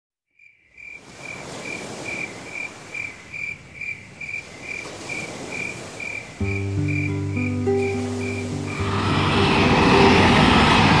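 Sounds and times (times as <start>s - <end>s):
cricket chirping: 0.3s - 8.9s
steady background hiss: 1.2s - 11.0s.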